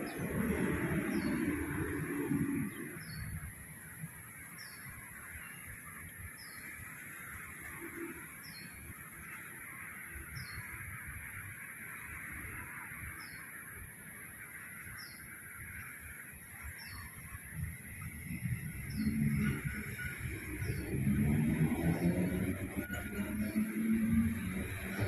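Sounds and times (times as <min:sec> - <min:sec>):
bird chirping: 0:14.7 - 0:25.0.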